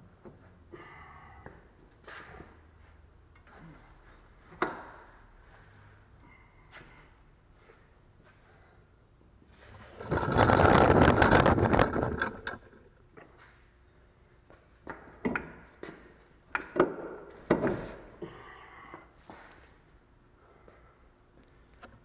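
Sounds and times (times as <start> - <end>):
rustling clatter: 9.8 - 12.8.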